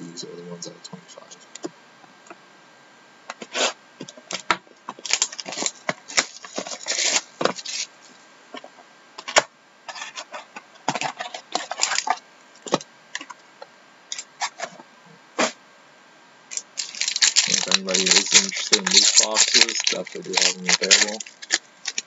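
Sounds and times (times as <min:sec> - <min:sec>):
shrink wrap tearing and crackling: 0:04.3 - 0:07.9, 0:11.2 - 0:12.2, 0:16.5 - 0:22.0.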